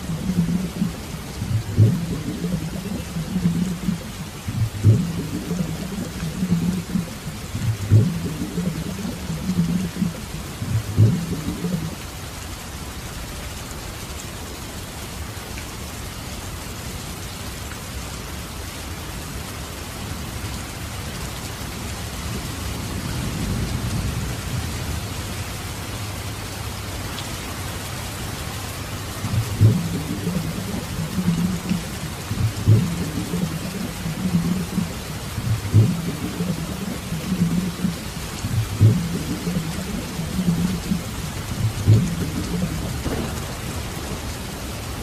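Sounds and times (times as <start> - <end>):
low uneven rumbling bursts: 0.0 - 12.4, 28.4 - 45.0
heavy rain on a street: 0.0 - 45.0.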